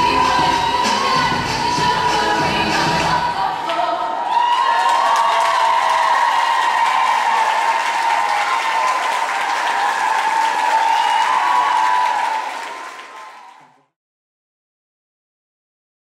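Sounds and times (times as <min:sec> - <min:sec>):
audience applauding: 0:03.7 - 0:13.9.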